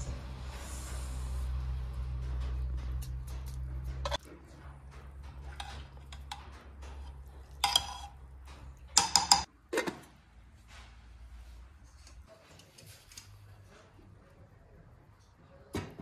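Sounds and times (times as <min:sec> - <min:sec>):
metal spoon clinking against pot: 0:05.4 - 0:09.5.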